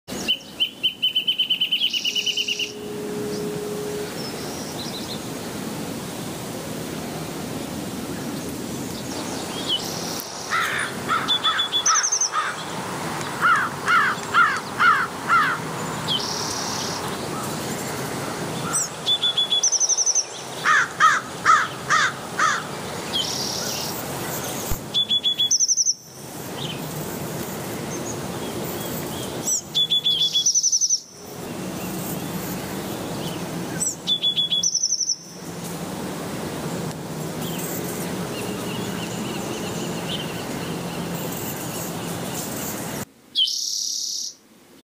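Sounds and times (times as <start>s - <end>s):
steady outdoor hiss: 0.1s - 44.8s
birds chirping and singing: 0.2s - 5.3s, 8.9s - 26.9s, 27.9s - 35.3s, 37.4s - 42.8s
buzzy bird trill: 0.2s - 5.3s, 9.3s - 12.7s, 18.6s - 26.9s, 28.0s - 35.5s
quick sweeping bird notes: 1.0s - 5.4s.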